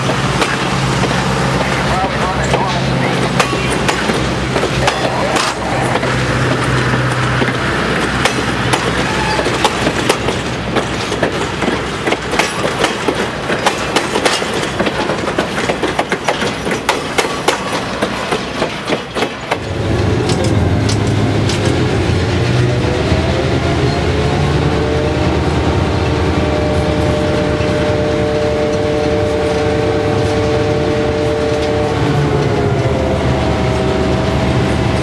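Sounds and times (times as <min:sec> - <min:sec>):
train wheels clicking over rail joints: 0:00.0 - 0:24.0
diesel locomotive engine hum: 0:00.0 - 0:35.0.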